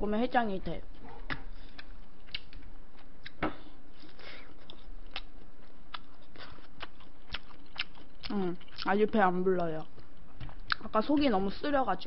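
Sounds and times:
crunchy chewing: 1.0s - 3.4s, 4.0s - 9.0s.

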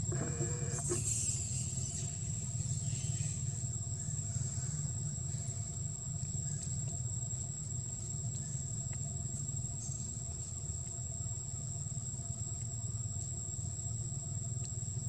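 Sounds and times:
high-pitched insect drone: 0.0s - 6.7s.

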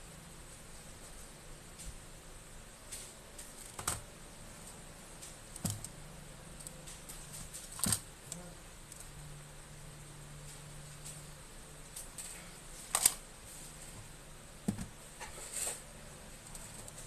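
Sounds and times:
sharp knocks on metal case: 14.7s - 14.9s.

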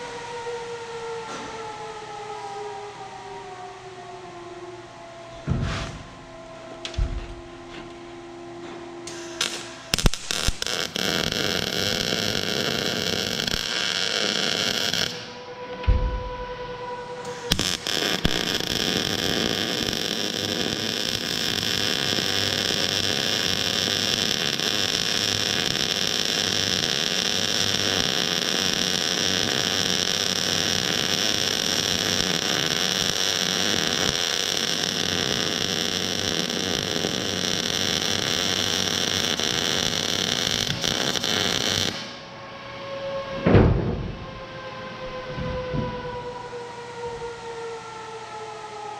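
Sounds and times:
welding arc crackling: 9.1s - 15.4s, 17.3s - 42.2s.

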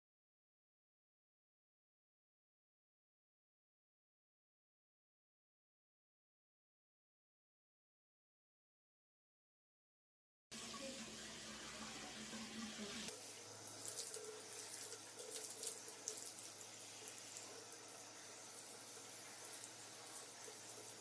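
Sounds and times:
shower water hissing: 10.5s - 21.0s
water spattering: 10.6s - 21.0s.

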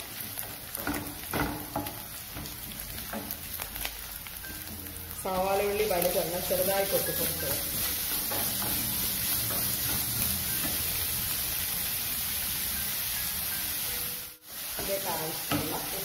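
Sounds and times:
vegetables sizzling in oil: 0.0s - 16.0s.

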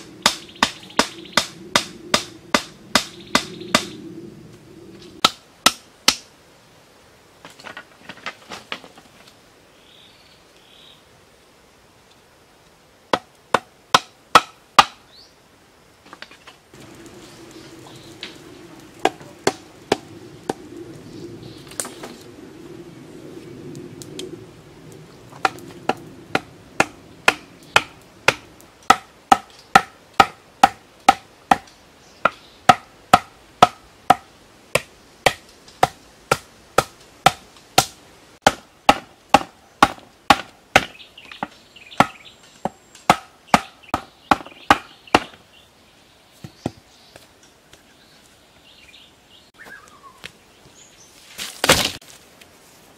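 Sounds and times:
hollow bamboo knocks: 34.8s - 45.4s.

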